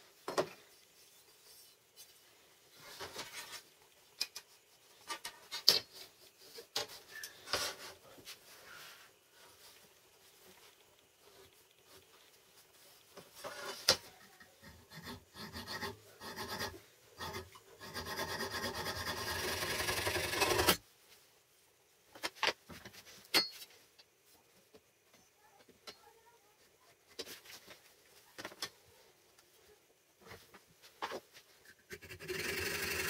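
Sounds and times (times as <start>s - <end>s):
hand file rasping on metal: 14.7s - 20.8s, 31.9s - 33.0s.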